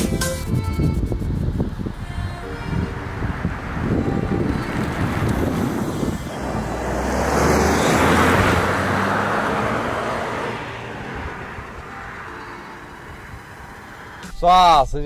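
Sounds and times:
car driving past: 2.6 - 14.3.

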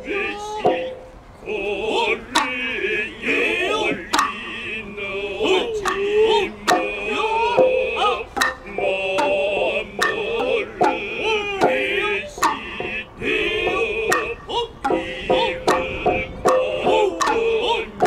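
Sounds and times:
high wavering bamboo flute: 0.0 - 18.0
voices chanting with bending pitch: 0.0 - 18.0
sharp cracking drum strikes: 2.4 - 2.6, 5.8 - 17.8.

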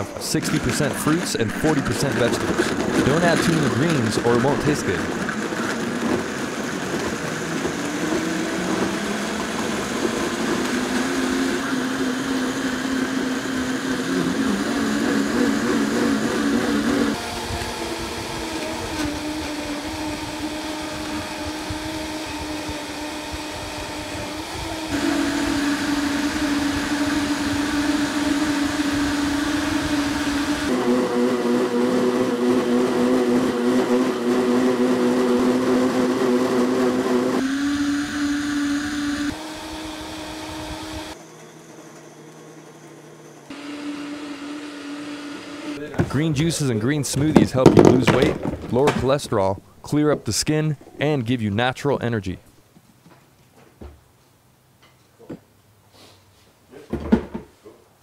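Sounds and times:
blender motor whine: 0.0 - 46.1.

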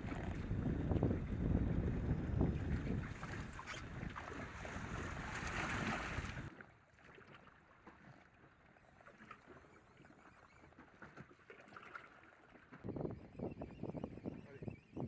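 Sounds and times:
wind on microphone: 0.0 - 6.5, 12.8 - 15.0
small waves lapping: 0.0 - 12.9
choppy sea water: 0.0 - 15.0
light water splashes: 2.6 - 13.0.

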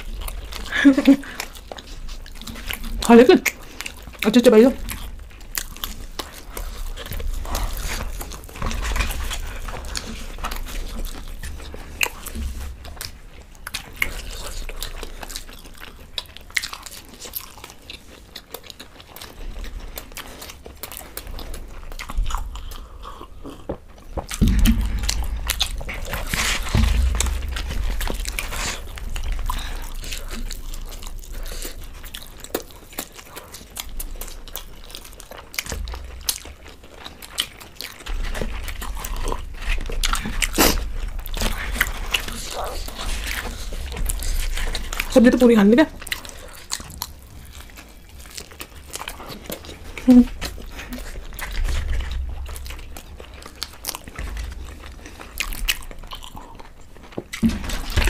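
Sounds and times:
people chewing: 0.0 - 58.0
dull thumps: 23.7 - 31.2
scraping on wooden plates: 23.7 - 31.6.

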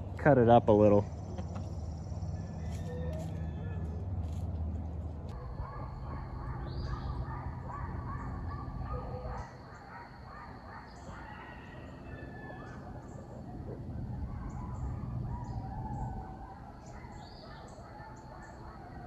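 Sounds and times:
birds chirping: 0.0 - 4.0, 4.8 - 19.0
coyotes yipping and howling: 0.0 - 4.4, 5.3 - 19.0
low rumble: 12.8 - 16.8.

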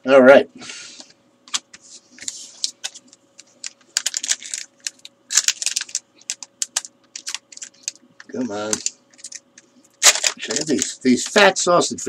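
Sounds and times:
foil wrapper crinkling and tearing: 2.6 - 9.4, 10.0 - 11.0.

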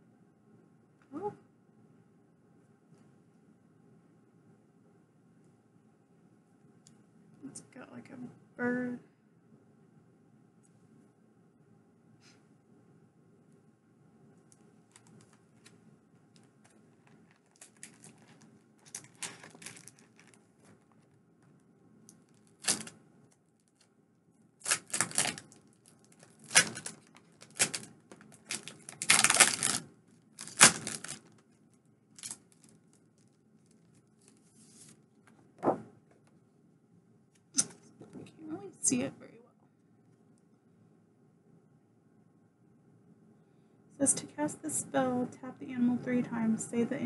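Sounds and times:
paper and packaging rustling: 14.9 - 21.2, 22.2 - 23.9, 24.6 - 31.6, 32.2 - 35.0.

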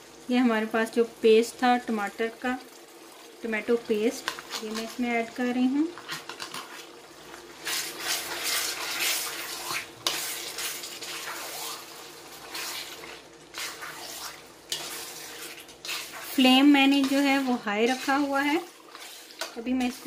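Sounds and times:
oil sizzling: 0.0 - 20.0
metal spoon scraping a pan: 4.2 - 5.0, 5.9 - 20.0.

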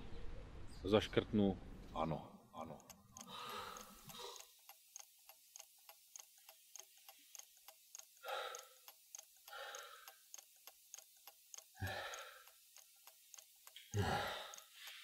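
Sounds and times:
clock ticking faintly: 2.6 - 15.0
person breathing: 3.1 - 4.6, 8.2 - 10.4, 11.6 - 12.6, 13.9 - 15.0.

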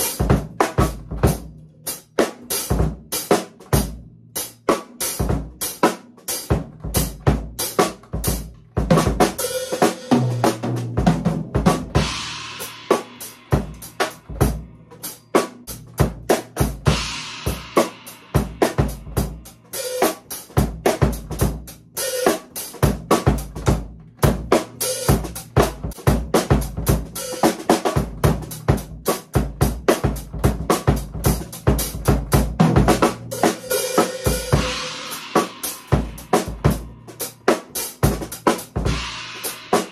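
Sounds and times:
snare and bass drum strokes: 0.0 - 39.9
crashing cymbals: 33.5 - 37.4.

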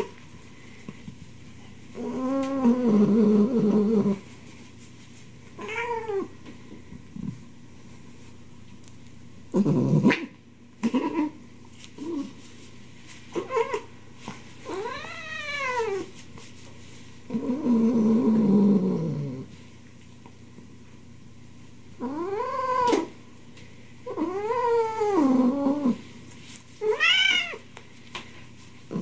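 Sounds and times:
cat meowing: 26.8 - 27.6.

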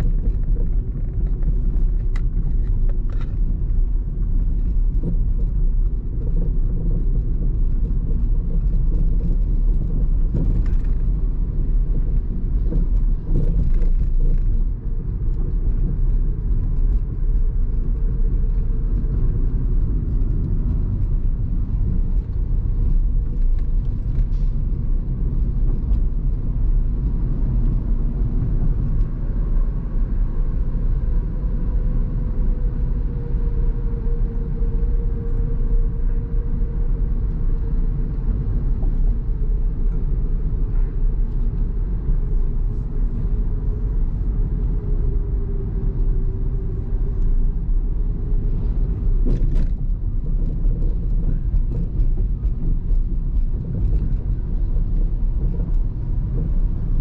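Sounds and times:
car road and tyre rumble: 0.0 - 57.0.

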